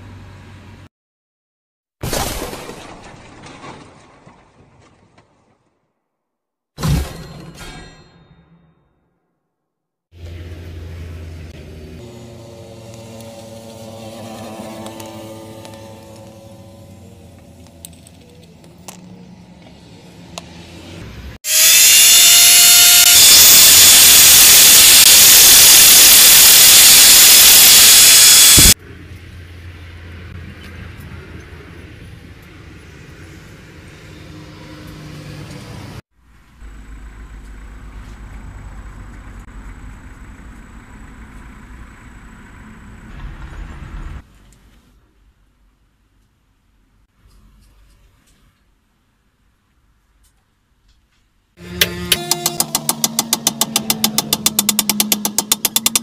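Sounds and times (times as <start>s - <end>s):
steady hum: 11.4s - 17.7s, 21.5s - 28.8s
angle grinder cutting steel rod: 12.0s - 17.6s, 21.4s - 28.8s, 51.6s - 56.0s.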